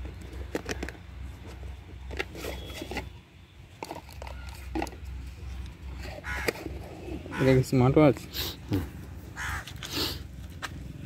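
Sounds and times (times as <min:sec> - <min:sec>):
cardboard clicks and rustles: 0:00.0 - 0:06.9.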